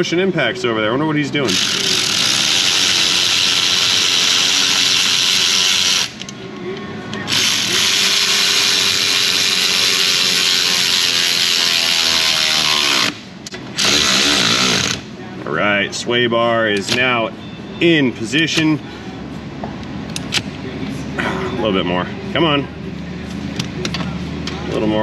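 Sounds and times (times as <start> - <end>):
air ratchet whirring: 1.5 - 6.3, 7.3 - 15.1.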